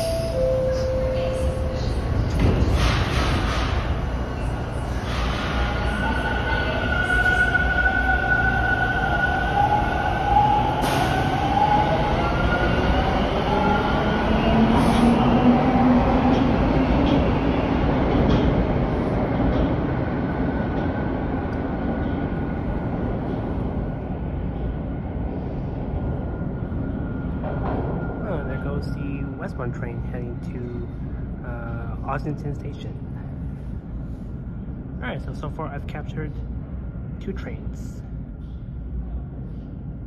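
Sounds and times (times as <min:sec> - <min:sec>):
wheels rumbling on rail: 0:00.0 - 0:29.4.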